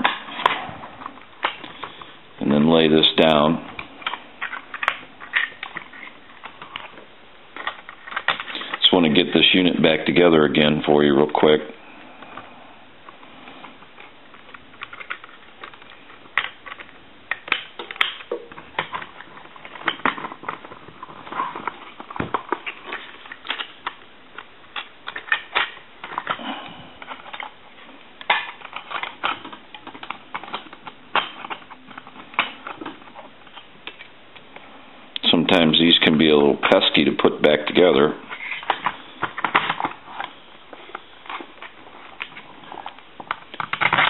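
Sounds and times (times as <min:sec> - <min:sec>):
plastic parts clicking together: 0:03.8 - 0:07.0, 0:07.6 - 0:08.9, 0:14.0 - 0:27.5, 0:28.2 - 0:34.1, 0:38.3 - 0:44.0.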